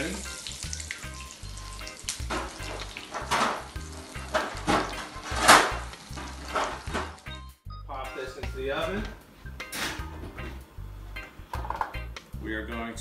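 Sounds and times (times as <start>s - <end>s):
chicken sizzling in oil: 0.0s - 7.4s.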